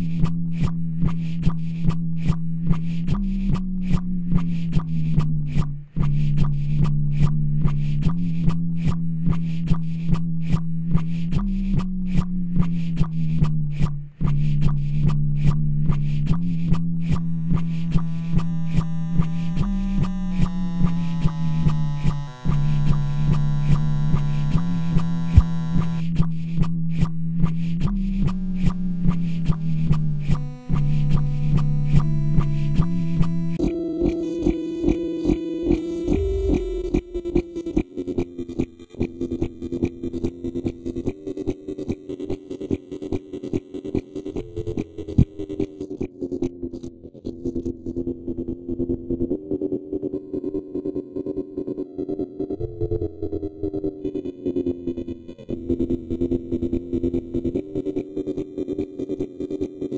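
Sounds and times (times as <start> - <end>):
low droning tone: 0.0 - 40.9
looped bass line: 0.0 - 41.2, 44.4 - 45.7
steady beat with hi-hat ticks: 0.0 - 46.6
heavy low hit: 36.1 - 37.8.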